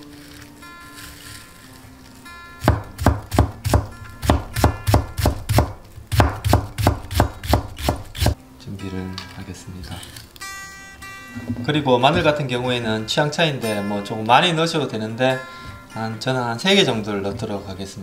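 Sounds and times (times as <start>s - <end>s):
faint background music: 0.0s - 18.0s
knife chopping on wooden board: 2.6s - 8.4s.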